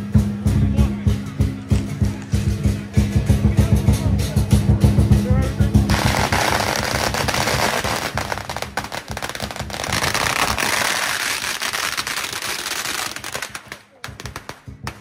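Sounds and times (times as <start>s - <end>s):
firecrackers crackling: 5.9s - 15.0s.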